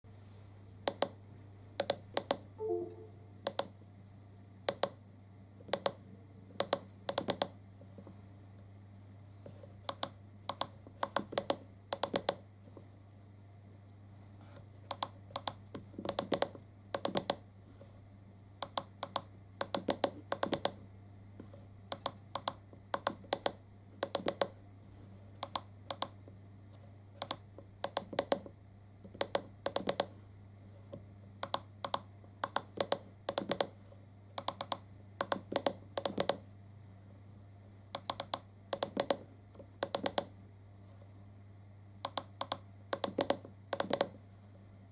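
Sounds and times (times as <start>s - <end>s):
steady low hum: 2.4s - 10.9s, 17.5s - 44.9s
device buttons clicking: 42.1s - 44.1s.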